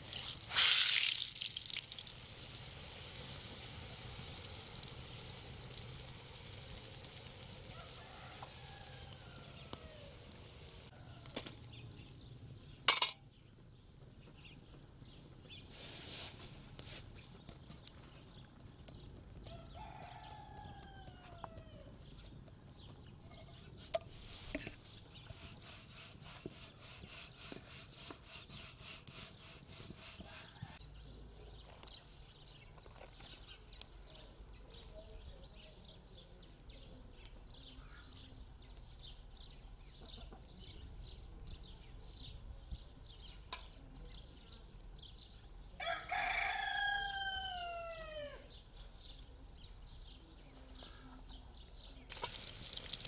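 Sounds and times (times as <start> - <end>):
farmyard ambience: 1.6 - 53.0
rooster crowing: 7.6 - 10.2, 19.4 - 21.9, 45.8 - 48.5.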